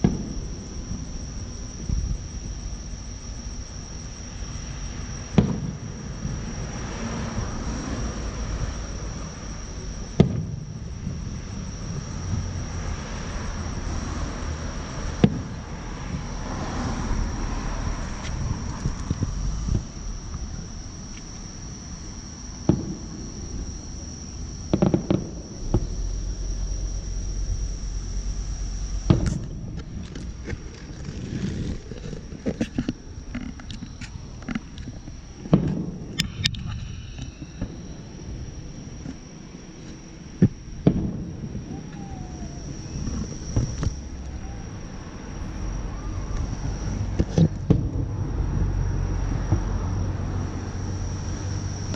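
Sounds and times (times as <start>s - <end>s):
distant fireworks booming: 0.0s - 2.9s, 4.4s - 21.0s, 21.6s - 51.6s
crickets trilling: 0.0s - 51.9s
low rumble: 5.0s - 39.0s.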